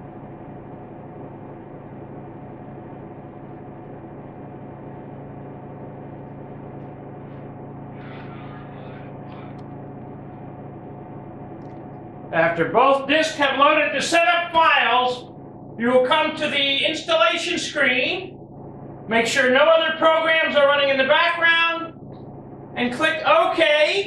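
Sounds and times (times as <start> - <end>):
computer fans humming: 0.0 - 24.0.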